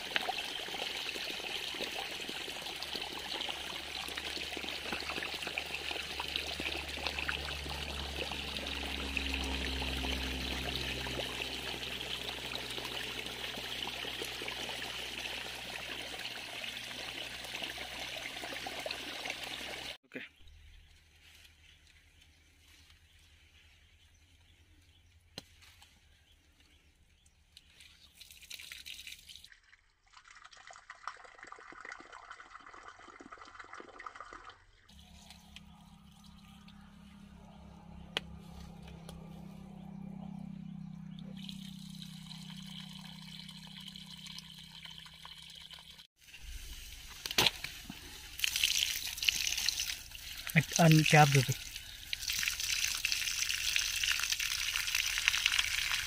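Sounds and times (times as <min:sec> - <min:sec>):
water splashing onto soil: 0:28.0 - 0:31.8, 0:46.4 - 0:56.0.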